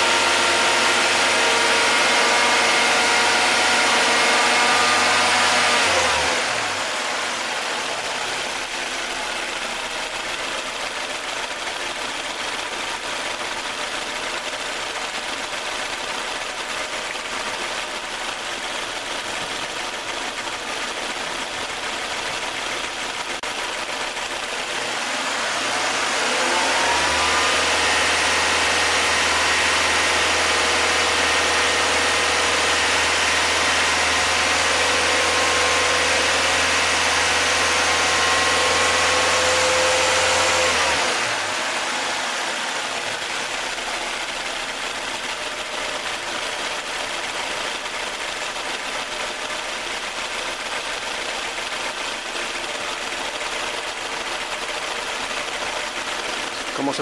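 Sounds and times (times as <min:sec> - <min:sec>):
car engine revving and idling: 0:00.0 - 0:57.0.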